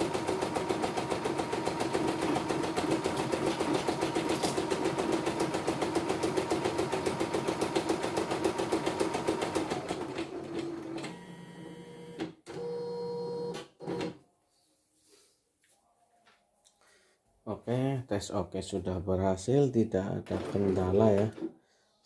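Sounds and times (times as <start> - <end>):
embroidery machine stitching: 0.0 - 14.2, 20.3 - 21.3.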